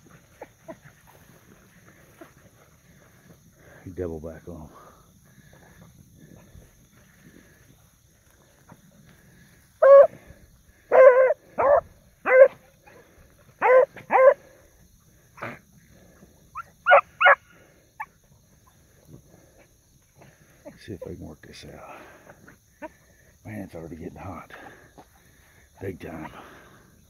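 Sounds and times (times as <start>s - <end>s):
hounds baying: 8.5s - 14.6s, 15.4s - 21.2s.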